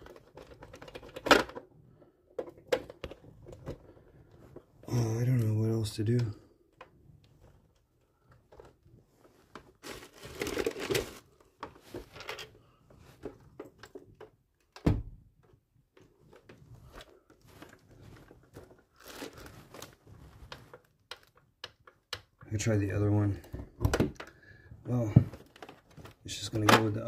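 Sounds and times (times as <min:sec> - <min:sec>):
plastic casing rustling and scraping: 0:00.0 - 0:14.7, 0:16.0 - 0:22.4, 0:23.0 - 0:27.0.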